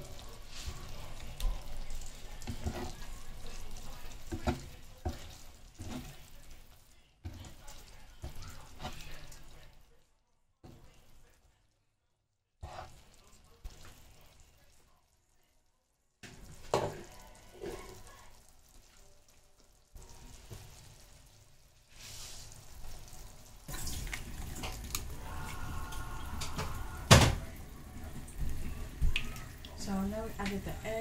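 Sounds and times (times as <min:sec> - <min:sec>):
fish sizzling in a pan: 0:00.0 - 0:09.9, 0:16.2 - 0:31.0.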